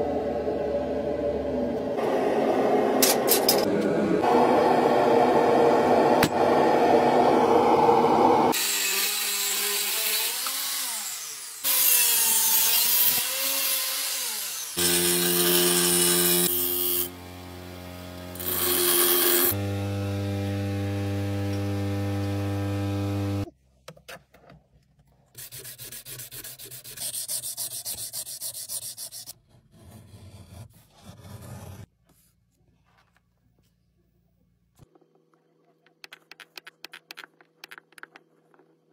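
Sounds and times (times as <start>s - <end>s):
blade grinding bursts: 8.6s - 23.5s.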